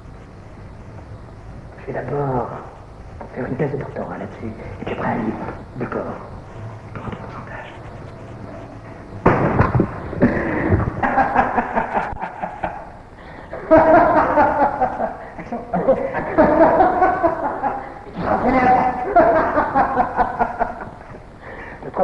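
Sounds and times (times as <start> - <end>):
man laughing loudly: 10.2 - 21.2.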